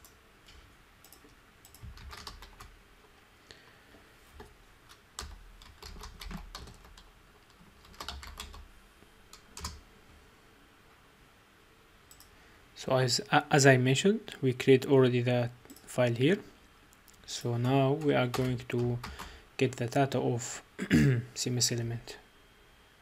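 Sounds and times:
computer keyboard typing: 1.0 - 2.7, 4.4 - 8.7, 9.3 - 9.8, 17.6 - 19.3.

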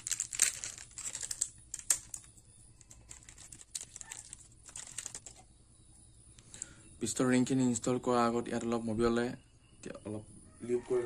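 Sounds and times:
paper packet crinkling: 0.0 - 5.4.

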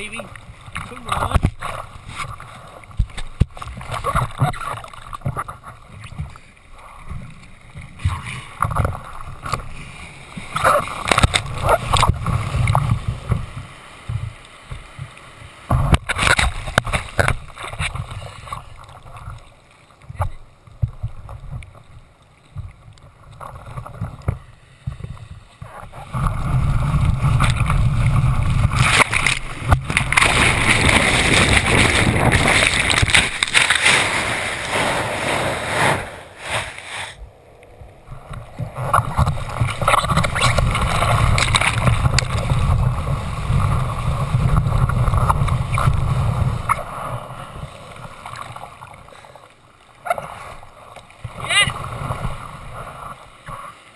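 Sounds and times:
ocean surf churning: 25.6 - 53.9.

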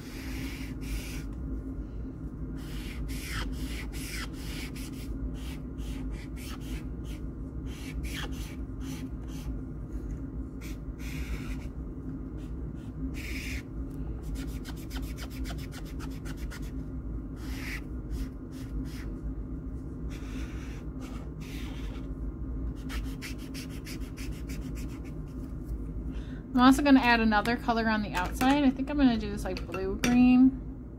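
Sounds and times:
felt-tip marker scratching paper: 0.0 - 1.3, 2.6 - 9.5, 10.6 - 11.7, 12.4 - 16.7, 17.4 - 19.1, 20.1 - 22.1, 22.8 - 25.2
steady low hum: 0.0 - 30.9.

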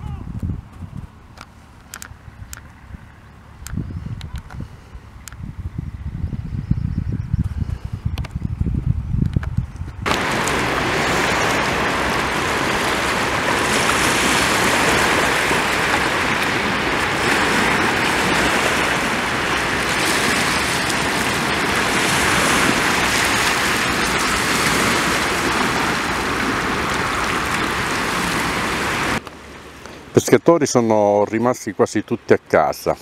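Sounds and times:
wind: 0.0 - 33.0
rain: 10.1 - 30.2.

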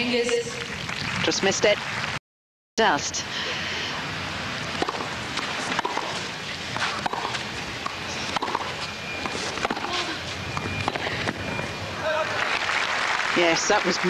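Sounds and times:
steady background noise: 0.0 - 2.2, 2.8 - 14.0
tennis ball hits: 4.8 - 9.9.

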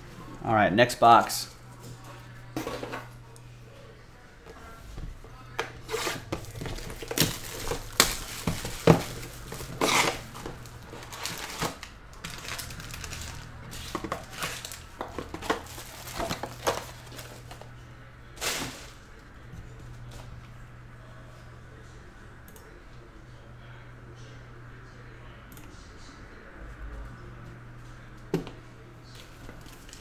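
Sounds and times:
wrapper rustles and crinkles: 5.9 - 17.7, 18.4 - 19.0.

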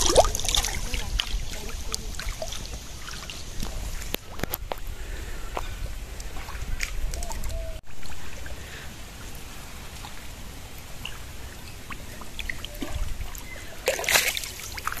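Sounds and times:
fish splashing: 0.0 - 4.6, 10.0 - 15.0
shallow water trickling: 0.0 - 15.0.

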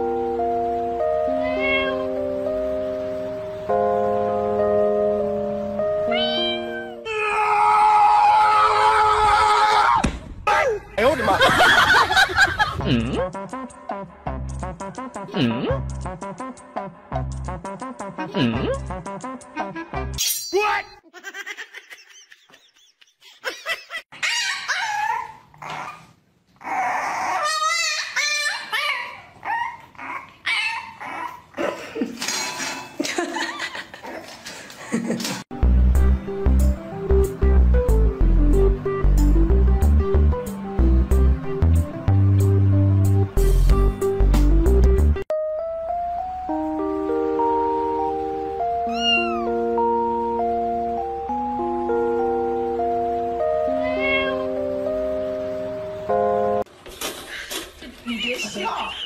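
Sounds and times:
background music: 0.0 - 7.7, 11.0 - 20.9, 35.5 - 56.7
cat meowing: 1.3 - 2.2, 6.1 - 7.0, 48.8 - 49.6, 53.7 - 54.6
dog barking and whining: 24.1 - 31.5, 48.9 - 49.6.

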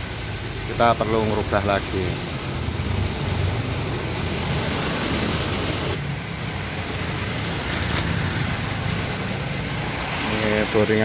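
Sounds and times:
rushing background noise: 0.0 - 11.0
plastic packaging rustling: 7.6 - 8.2.

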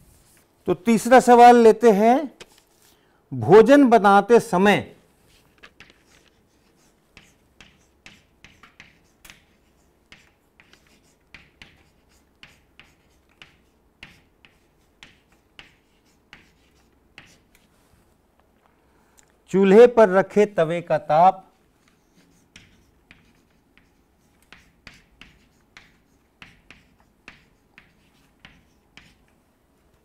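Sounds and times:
chalk scratching on chalkboard: 5.3 - 17.8, 21.8 - 29.3.

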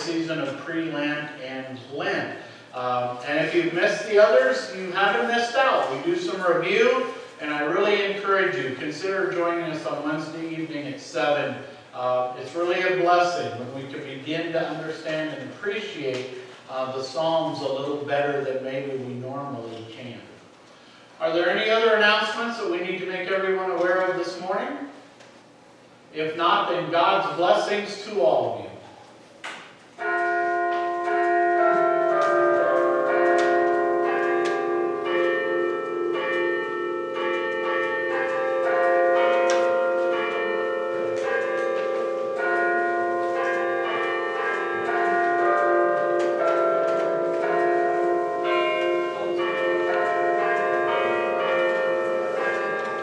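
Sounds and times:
church bells ringing: 0.0 - 19.0, 29.9 - 53.0.

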